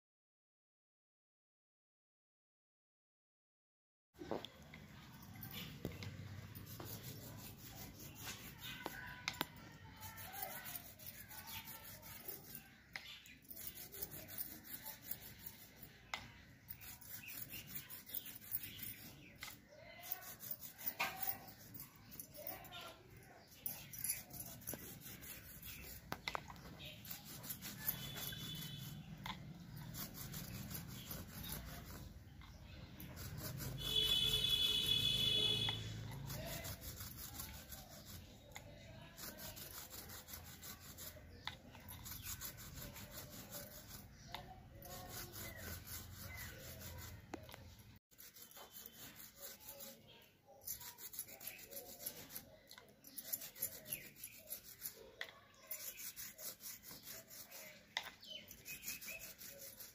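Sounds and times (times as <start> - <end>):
toothbrush scrubbing carpet: 5.3 - 59.9.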